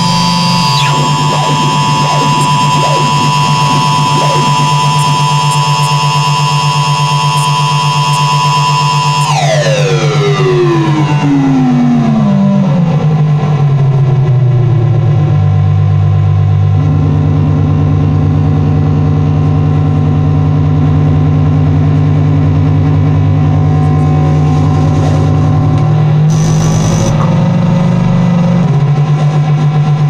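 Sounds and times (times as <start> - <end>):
pulsing buzzy layer: 0.0 - 9.4, 22.3 - 28.7
droning noise music: 0.0 - 11.9.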